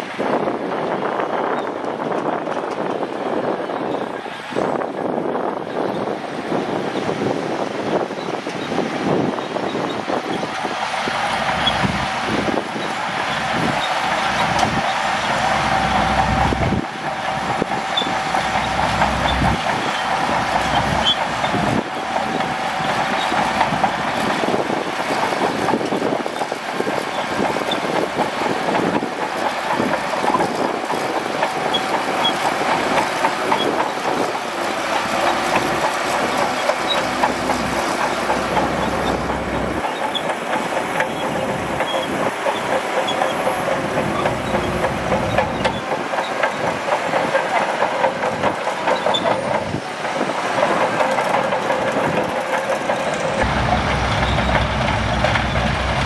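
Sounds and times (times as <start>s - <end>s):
bulldozer diesel engine running: 0.1s - 56.0s
steel track chains clattering: 17.5s - 56.0s.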